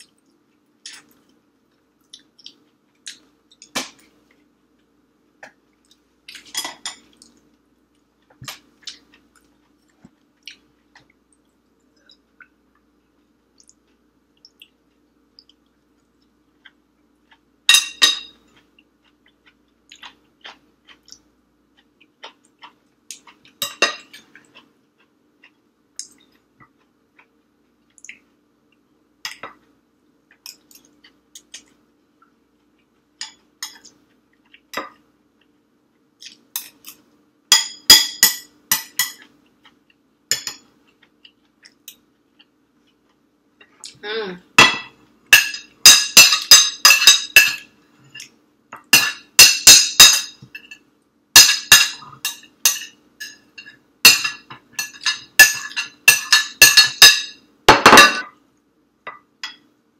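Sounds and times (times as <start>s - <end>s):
metal spoon clinking on glass bowl: 49.0s - 50.8s, 51.4s - 58.3s
utensils tapping glass plates: 49.0s - 50.8s, 51.4s - 58.3s.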